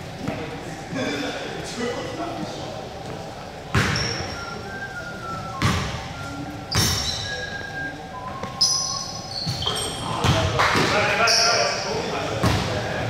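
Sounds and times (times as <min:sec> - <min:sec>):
sneaker squeaks: 0:03.7 - 0:12.7.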